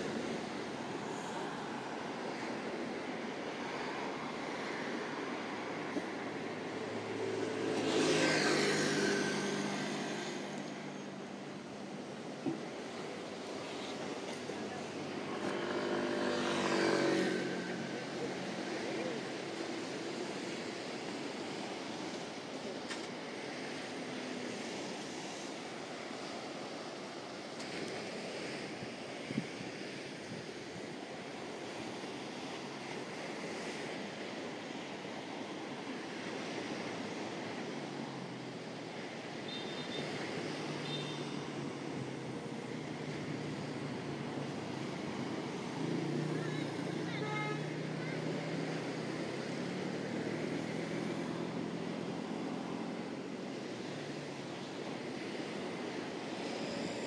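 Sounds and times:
sea surf washing on shore: 0:00.0 - 0:57.0
wind: 0:00.0 - 0:57.0
wind on the microphone: 0:27.8 - 0:31.5.

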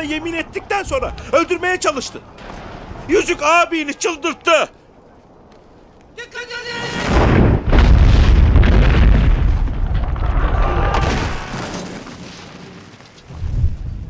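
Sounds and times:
rumbling crumbling debris: 0:07.0 - 0:14.0
deep impact boom: 0:07.1 - 0:11.5.

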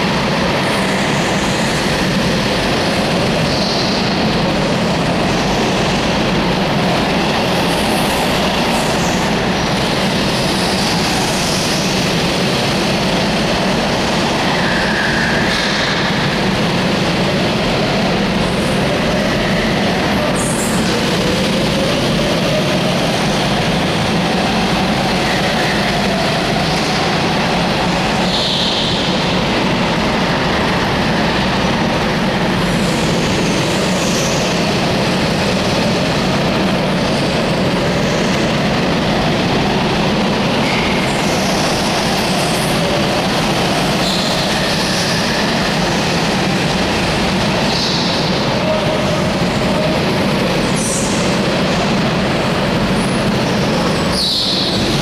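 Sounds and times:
go-kart engines droning: 0:00.0 - 0:55.0
tyre squeals: 0:53.9 - 0:54.9.

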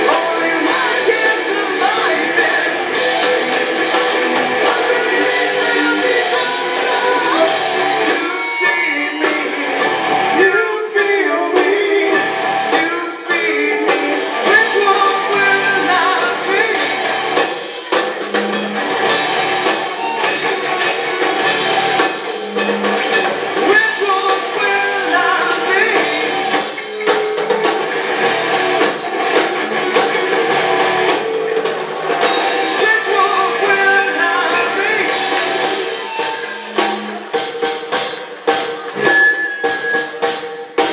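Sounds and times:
person singing: 0:00.0 - 0:17.5, 0:23.6 - 0:27.7, 0:31.1 - 0:39.8
bass guitar: 0:00.0 - 0:40.9
drum kit: 0:00.0 - 0:40.9
electric guitars: 0:00.0 - 0:40.9.

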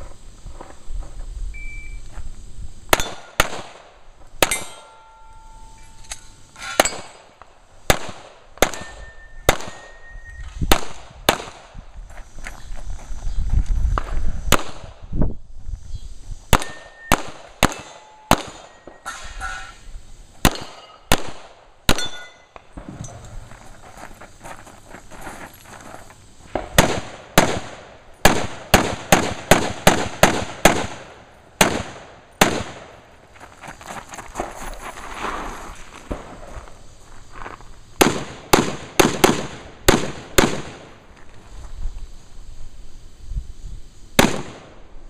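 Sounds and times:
short ringing tone: 0:01.6 - 0:02.0, 0:04.8 - 0:06.4, 0:08.8 - 0:10.5
pistol shots: 0:02.9 - 0:04.8, 0:07.9 - 0:10.0, 0:10.7 - 0:11.7, 0:16.5 - 0:18.8, 0:20.4 - 0:22.9, 0:26.6 - 0:33.0, 0:38.0 - 0:40.9, 0:44.2 - 0:44.7.

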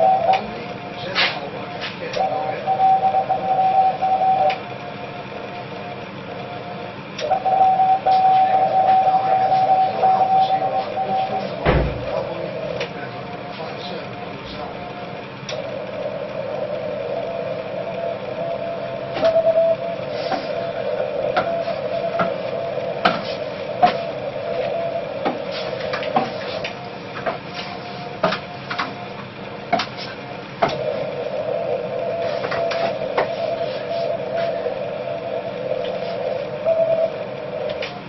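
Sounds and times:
short steady radio tone: 0:00.0 - 0:28.6, 0:30.0 - 0:38.0
radio receiver hiss: 0:07.2 - 0:38.0.

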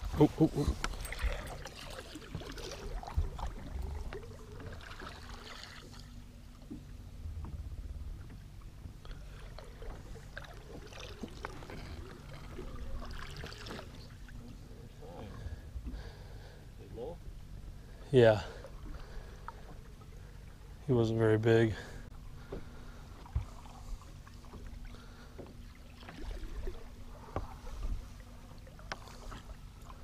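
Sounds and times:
water lapping against boat: 0:00.0 - 0:30.0
wind rumbling on microphone: 0:07.0 - 0:09.1.

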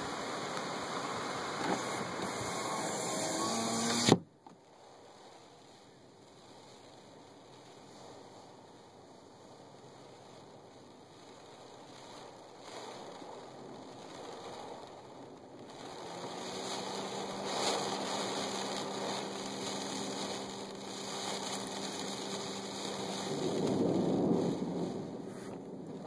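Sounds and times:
heavy rain on car roof: 0:00.0 - 0:03.4, 0:04.9 - 0:26.0
vehicle engine hum: 0:13.8 - 0:26.0.

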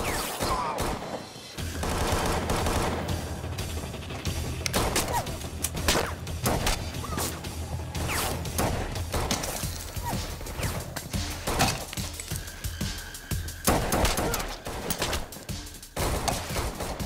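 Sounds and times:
gunshots: 0:00.0 - 0:03.4, 0:04.7 - 0:07.4, 0:08.0 - 0:12.0, 0:13.6 - 0:15.4, 0:16.0 - 0:17.0.

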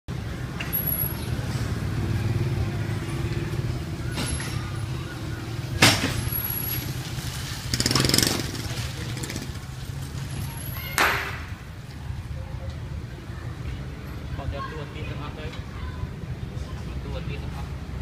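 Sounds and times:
vehicle engine humming: 0:00.1 - 0:10.9.

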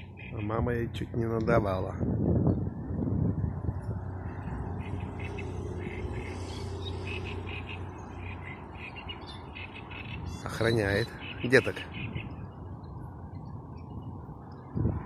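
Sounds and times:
frogs croaking: 0:00.0 - 0:00.5, 0:04.2 - 0:12.4.

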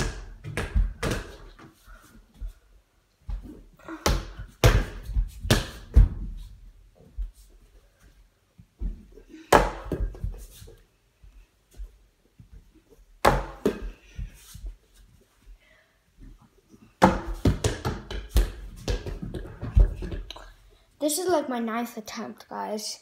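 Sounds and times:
foam ball hitting hoop and door: 0:13.2 - 0:13.8.

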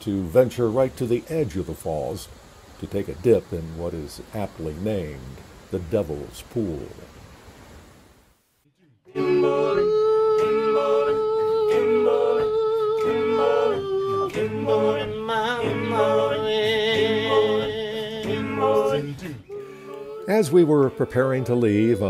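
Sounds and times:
male vocal group singing a cappella: 0:09.1 - 0:22.0.

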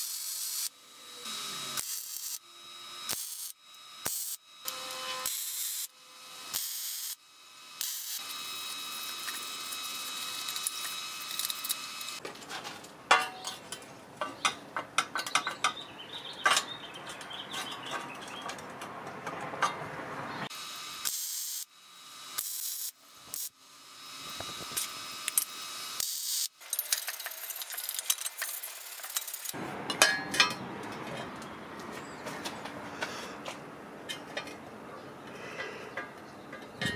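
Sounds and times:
welding arc hiss and whine: 0:00.0 - 0:12.2, 0:20.5 - 0:29.6
metal parts clicking and knocking: 0:26.6 - 0:31.4.

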